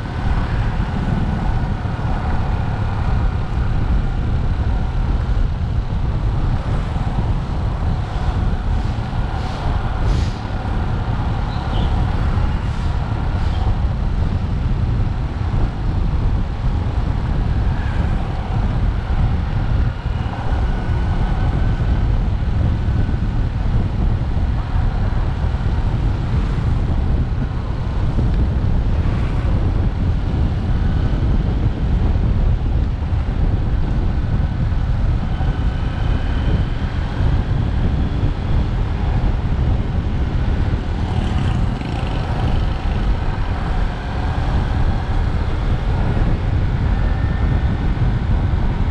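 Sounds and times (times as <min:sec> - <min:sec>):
wind on microphone: 0:00.0 - 0:48.9
motorcycle engine running: 0:39.5 - 0:45.4.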